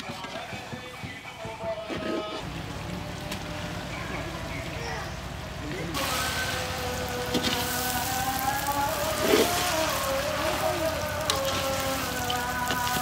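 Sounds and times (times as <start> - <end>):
noodles sizzling in a pan: 3.0 - 13.0.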